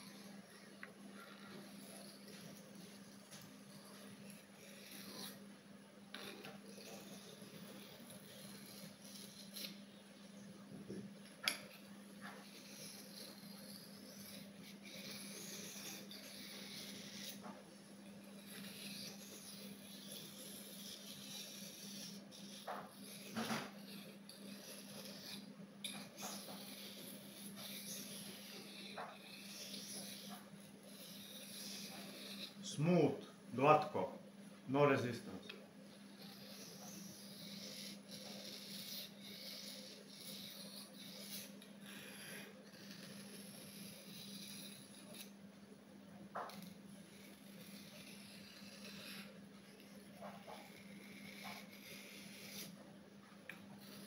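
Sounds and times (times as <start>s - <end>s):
knife blade scraping: 6.1s - 9.8s, 11.4s - 17.5s, 18.4s - 32.6s, 36.1s - 45.4s
knife scraping on sharpening stone: 18.4s - 32.6s.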